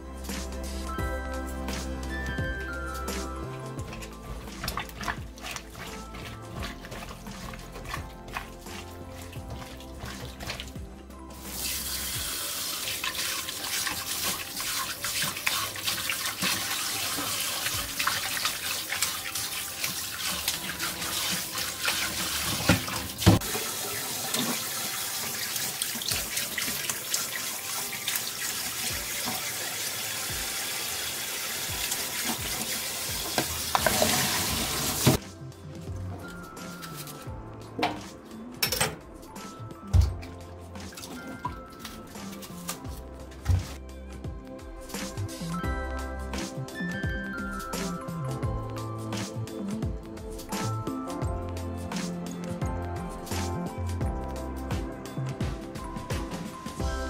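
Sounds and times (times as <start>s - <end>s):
background music: 0.0s - 57.0s
water pouring through colander: 3.0s - 35.2s
tap running into sink: 13.1s - 27.0s, 31.7s - 35.2s.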